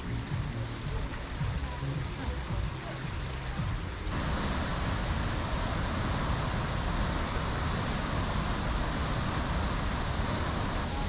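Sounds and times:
waterfall roaring: 4.1 - 11.0.

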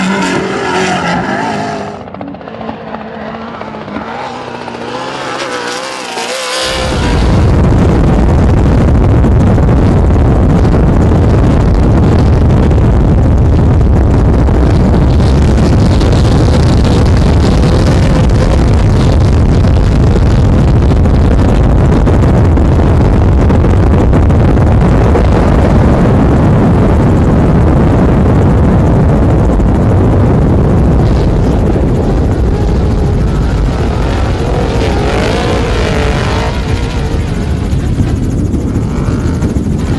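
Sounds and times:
engine drone: 0.0 - 39.9
wind noise: 0.0 - 39.9.

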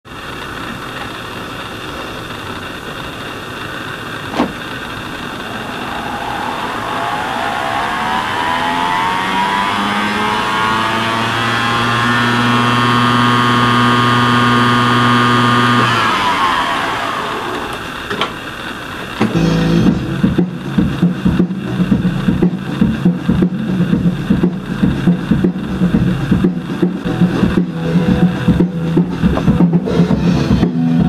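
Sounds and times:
tape reels whirring: 0.1 - 19.4
whine rising in pitch: 2.2 - 31.0.

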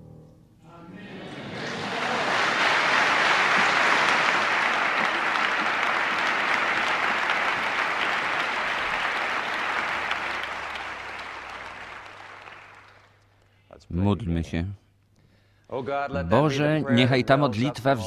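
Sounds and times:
audience applauding: 1.0 - 13.2.

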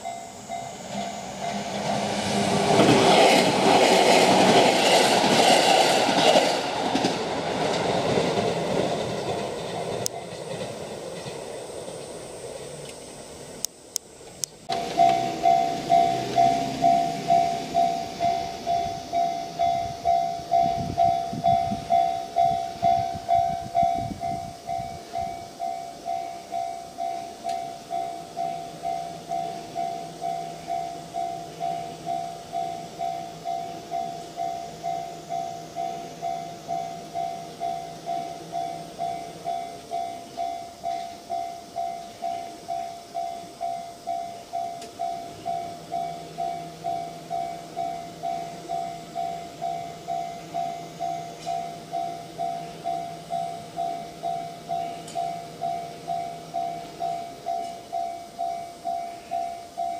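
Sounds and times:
level crossing bell ringing: 0.0 - 1.8, 14.7 - 59.9
train rumbling past: 0.0 - 59.9.

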